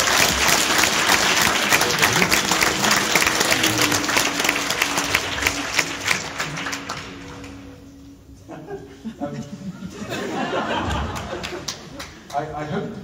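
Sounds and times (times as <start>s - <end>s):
audience applauding: 0.0s - 8.0s, 10.9s - 12.6s.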